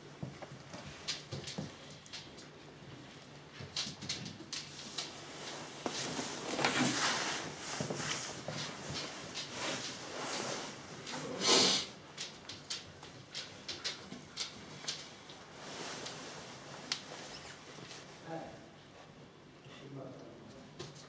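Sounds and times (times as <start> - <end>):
dog claws clicking on wooden floor: 3.5 - 5.2, 12.1 - 15.1.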